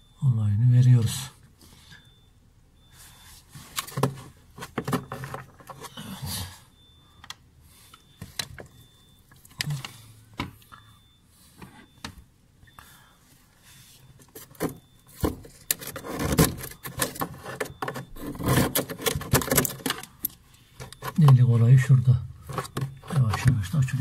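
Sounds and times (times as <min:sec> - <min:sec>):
scraping inside refrigerator: 0:13.9 - 0:20.1.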